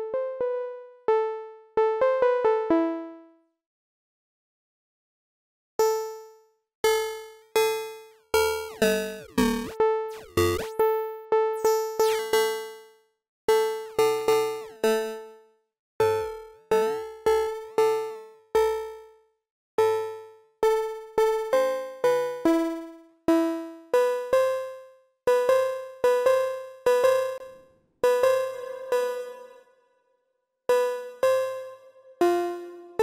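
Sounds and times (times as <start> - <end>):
plucked synthesizer notes: 8.4 - 12.4.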